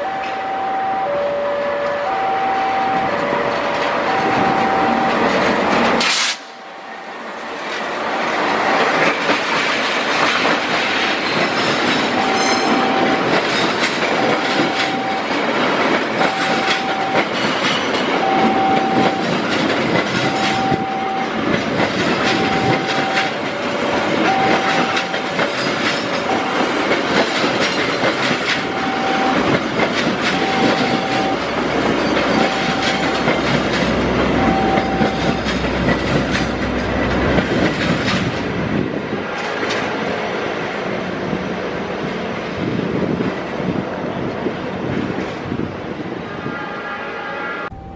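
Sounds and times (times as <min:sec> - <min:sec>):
short electronic tone: 0:00.0 - 0:03.4, 0:04.1 - 0:05.3
lower electronic tone: 0:00.0 - 0:05.3
train passing: 0:00.0 - 0:47.9
wheels clacking over rail joints: 0:02.8 - 0:06.4, 0:07.6 - 0:40.3.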